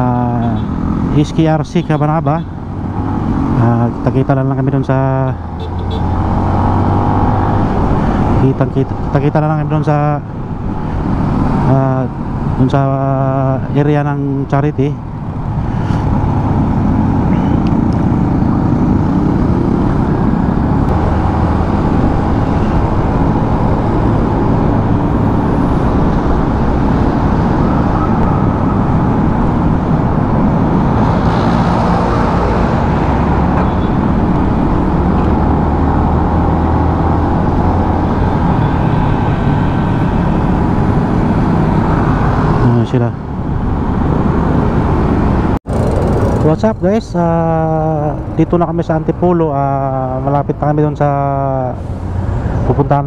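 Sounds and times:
motorcycle engine running: 45.6s - 46.6s.

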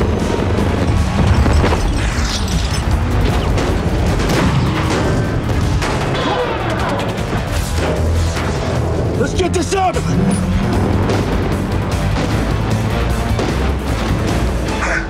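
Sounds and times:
explosion booms and crashes: 0.0s - 9.4s
driving score music: 2.8s - 15.0s.

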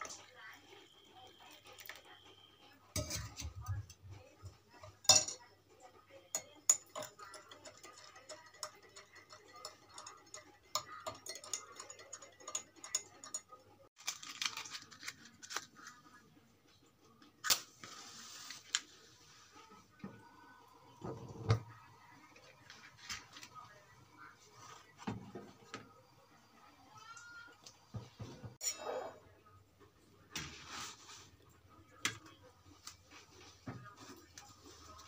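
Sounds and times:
teaspoon clinking against glass: 5.0s - 5.4s, 6.3s - 13.6s.

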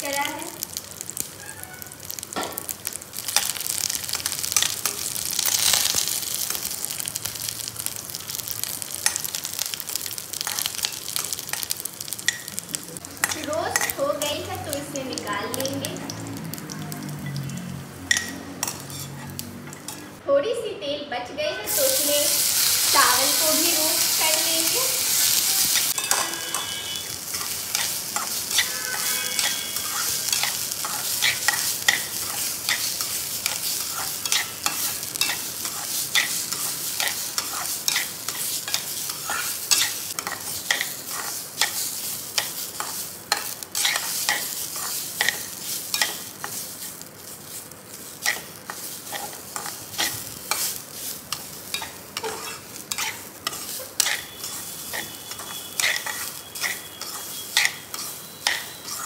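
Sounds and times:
faint sizzle: 0.0s - 59.0s
steel spoon scraping pot: 18.1s - 20.1s, 25.7s - 38.1s, 51.3s - 59.0s.

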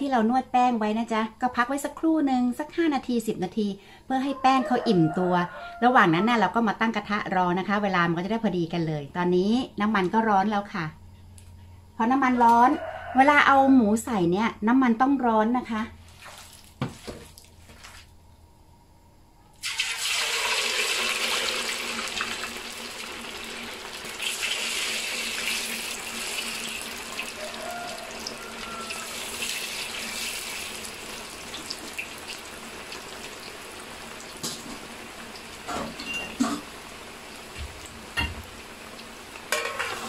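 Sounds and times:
battered meat frying in hot oil: 19.6s - 40.0s.

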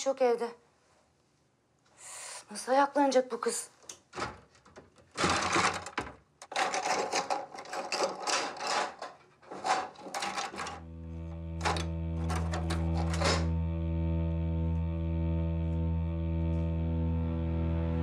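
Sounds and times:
drawer contents rattling and clattering: 4.1s - 10.8s, 11.6s - 13.5s
low music drone: 10.6s - 18.0s.

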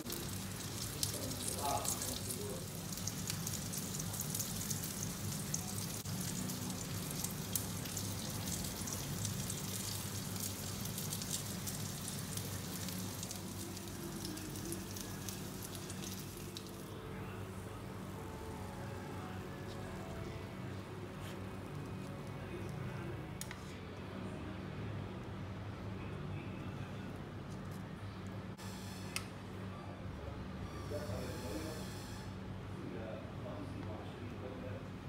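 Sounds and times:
food sizzling in a pan: 0.0s - 16.9s.

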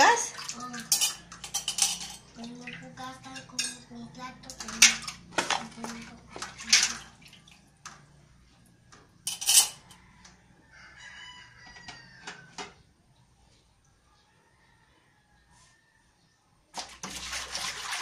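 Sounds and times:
ceramic dishes clattering: 0.8s - 2.3s, 3.2s - 3.9s, 4.5s - 7.1s, 9.3s - 10.0s
rooster crowing: 9.8s - 12.7s, 14.1s - 16.2s.

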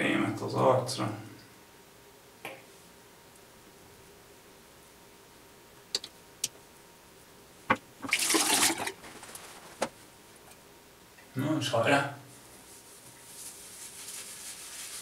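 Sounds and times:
water splashing: 8.0s - 9.4s.

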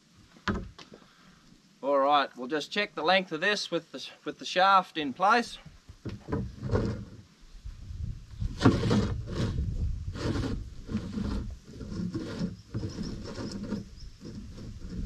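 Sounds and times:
metal shaft scraping tub: 8.5s - 15.0s.

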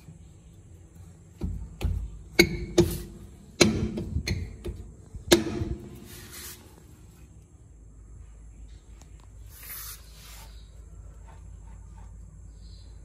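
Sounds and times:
metallic knocks on brake drum: 2.4s - 6.0s.

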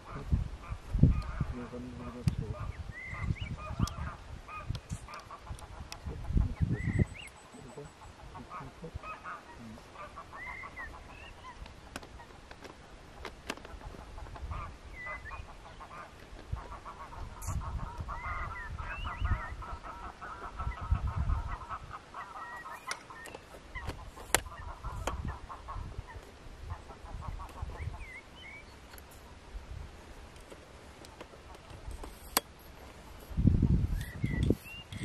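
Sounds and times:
geese honking: 7.4s - 12.4s, 13.6s - 28.6s.

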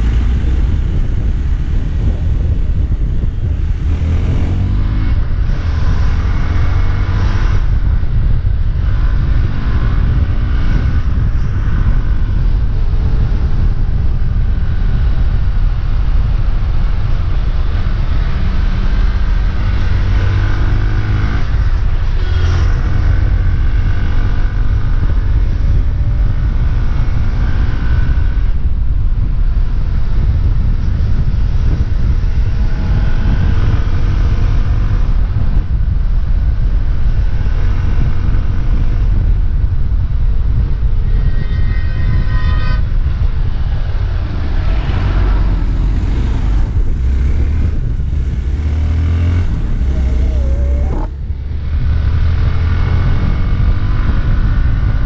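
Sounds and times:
motorcycle engine revving: 0.0s - 29.3s, 40.4s - 55.0s
wind rumble on microphone: 0.0s - 55.0s.

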